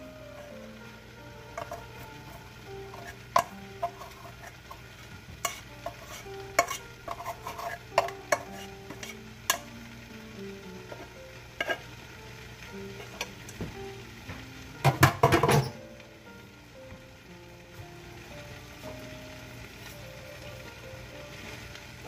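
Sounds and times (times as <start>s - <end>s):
plastic paddle knocking metal pot: 14.8s - 15.8s.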